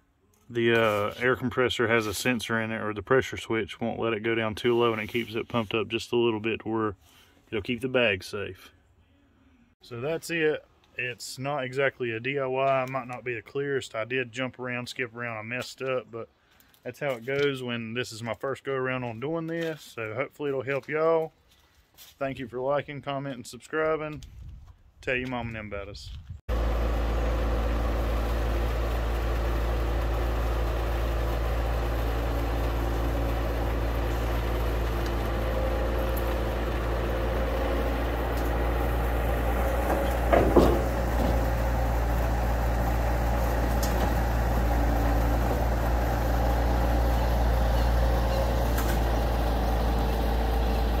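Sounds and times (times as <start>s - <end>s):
loader engine running: 26.5s - 51.0s
loud metal clank: 39.6s - 41.5s.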